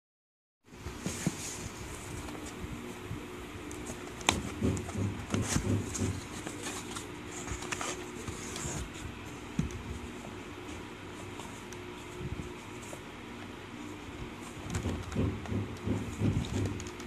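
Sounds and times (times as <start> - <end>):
steady low hum: 0.7 - 17.0
cardboard scraping and tapping: 3.7 - 10.3, 14.5 - 17.0.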